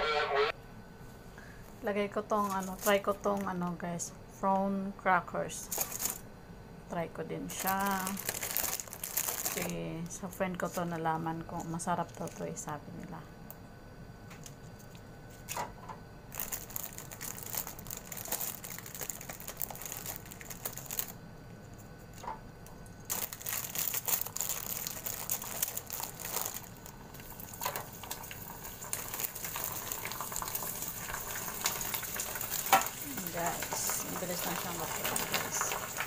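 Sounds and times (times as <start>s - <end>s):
oil sizzling and crackling in fryer: 23.0s - 36.0s.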